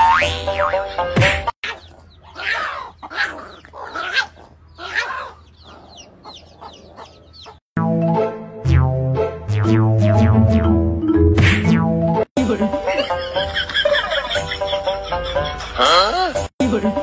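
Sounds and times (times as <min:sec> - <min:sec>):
music: 0:00.0 - 0:01.6, 0:07.8 - 0:17.0
hen clucking and squawking: 0:01.6 - 0:07.6.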